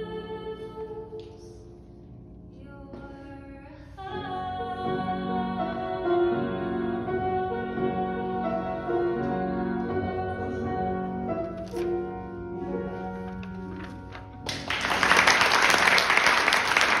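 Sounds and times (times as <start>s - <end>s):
piano accompaniment: 0.0s - 17.0s
audience applauding: 14.4s - 17.0s.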